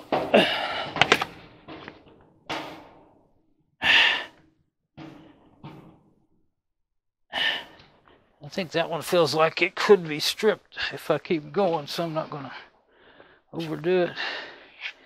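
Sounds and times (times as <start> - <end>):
man breathing heavily and sighing: 0.1 - 1.3, 3.8 - 4.4, 7.3 - 8.3, 12.5 - 15.0.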